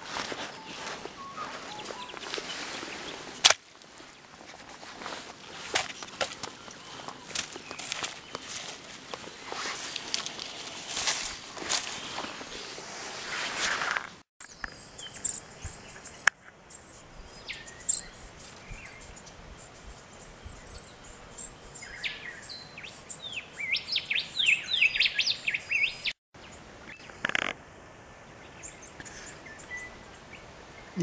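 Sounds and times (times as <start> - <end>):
birds chirping: 0.0 - 12.7
short rustle: 0.0 - 14.2.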